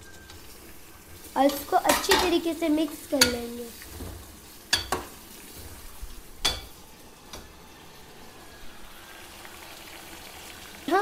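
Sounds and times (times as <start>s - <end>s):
onions frying in oil: 0.0s - 11.0s.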